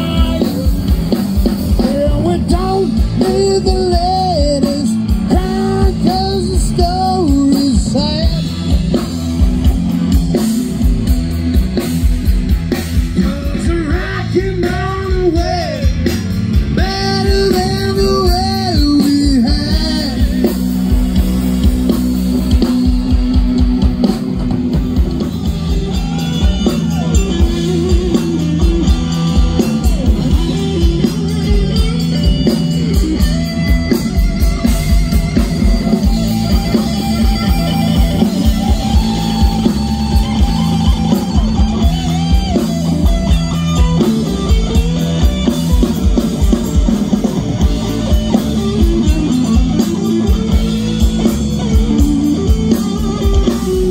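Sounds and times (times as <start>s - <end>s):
drum kit beat: 0.0s - 53.9s
electric guitars: 0.0s - 53.9s.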